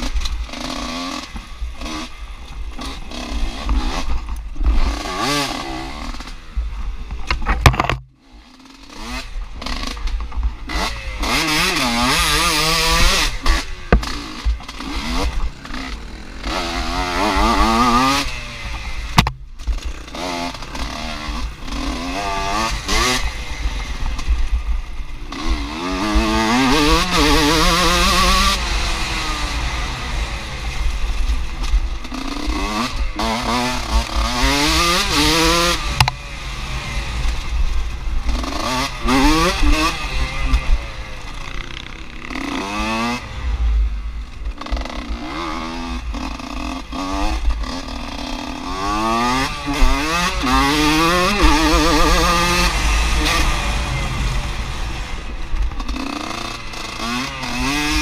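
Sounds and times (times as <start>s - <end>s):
motorcycle engine revving: 0.0s - 58.0s
knocks from bumps: 19.2s - 19.9s.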